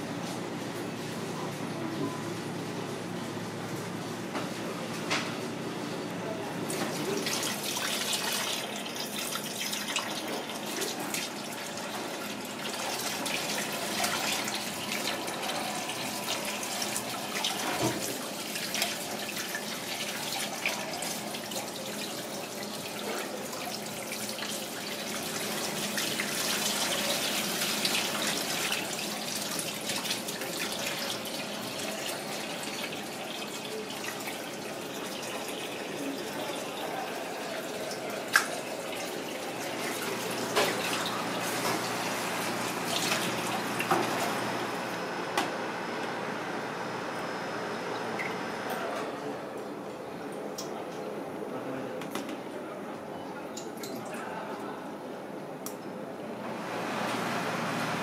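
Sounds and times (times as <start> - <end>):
tap water running into sink: 6.7 - 44.5.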